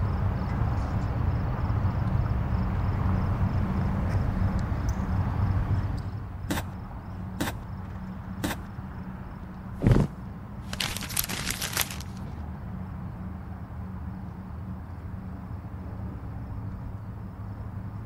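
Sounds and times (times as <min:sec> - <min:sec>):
person sitting down on bed: 0:09.8 - 0:12.2
light footsteps: 0:09.8 - 0:12.3
paper rustling: 0:09.8 - 0:12.3.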